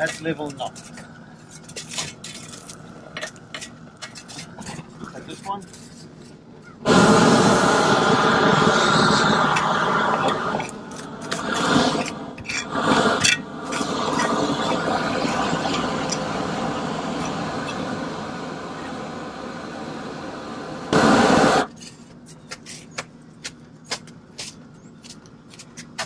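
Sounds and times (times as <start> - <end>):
shovel scraping and tapping: 0.0 - 6.4, 10.2 - 14.4, 21.7 - 26.0
roofing torch rushing: 6.8 - 21.9.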